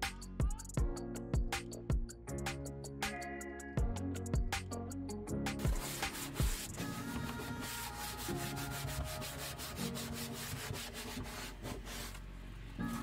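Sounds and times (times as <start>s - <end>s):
background music: 0.0s - 13.0s
sandpaper scratching on wood: 5.6s - 12.2s.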